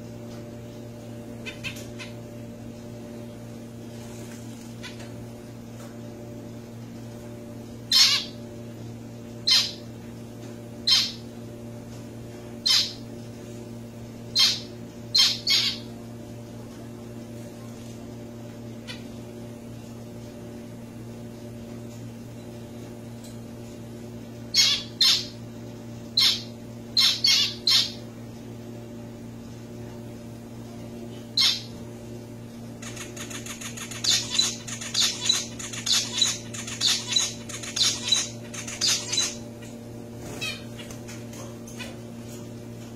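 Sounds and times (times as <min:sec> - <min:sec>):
finches calling: 0:07.9 - 0:08.4, 0:09.4 - 0:09.8, 0:10.8 - 0:11.2, 0:12.6 - 0:13.0, 0:14.3 - 0:15.9, 0:24.5 - 0:25.4, 0:26.2 - 0:28.0, 0:31.4 - 0:31.8, 0:32.8 - 0:40.9.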